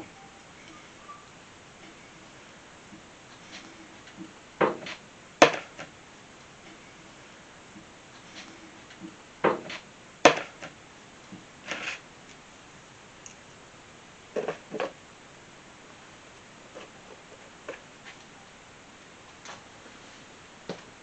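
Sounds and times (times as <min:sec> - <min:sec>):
knocks and clunks of wood and plastic: 0:04.1 - 0:05.9, 0:09.4 - 0:10.8.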